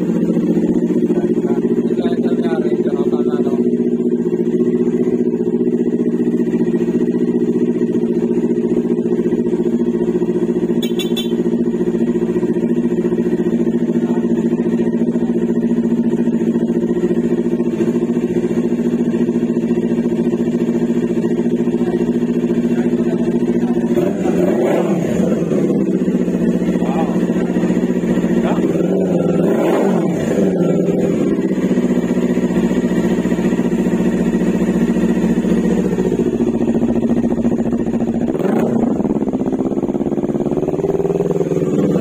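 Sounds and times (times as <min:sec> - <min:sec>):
motorcycle engine idling: 0:00.0 - 0:42.0
engine throttle blip: 0:10.7 - 0:11.6.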